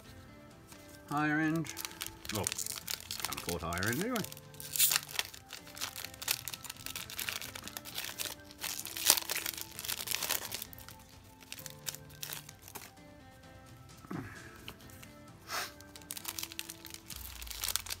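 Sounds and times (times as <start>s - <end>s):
soft background music: 0.0s - 18.0s
foil wrapper crinkling: 1.5s - 13.0s, 15.7s - 18.0s.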